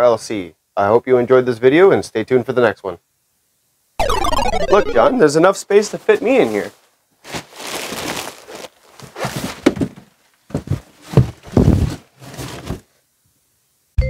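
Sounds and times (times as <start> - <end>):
plastic wrap crinkling: 6.0 - 13.0
bed platform thumps: 9.0 - 12.8.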